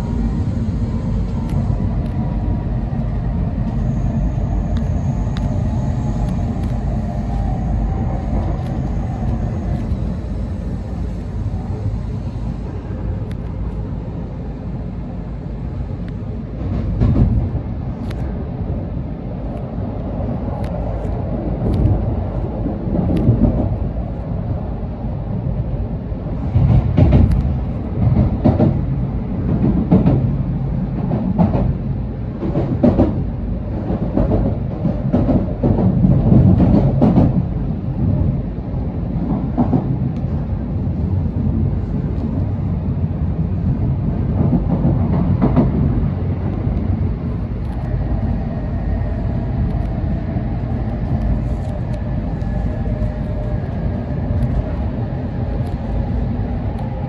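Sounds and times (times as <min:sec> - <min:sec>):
train wheels rumbling on rail: 0:00.0 - 0:57.0
clacks over rail joints: 0:26.6 - 0:30.3, 0:32.4 - 0:37.5.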